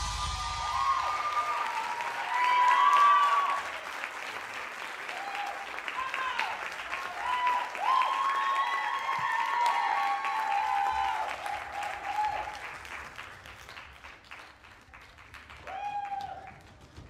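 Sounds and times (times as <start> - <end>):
high-pitched cheers: 0.0 - 4.0, 5.0 - 12.6, 15.6 - 16.6
audience applauding: 0.0 - 17.0.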